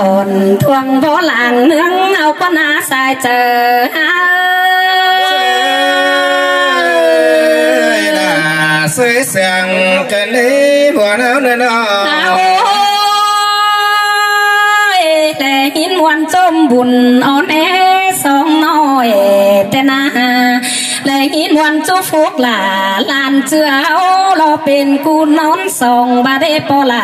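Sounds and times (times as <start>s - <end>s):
woman and man folk singing: 9.8s - 15.8s.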